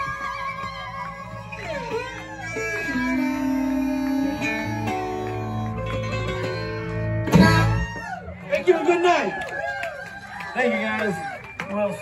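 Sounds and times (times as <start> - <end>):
electric bass line: 0.0 - 8.2
plucked acoustic guitar: 1.4 - 7.9.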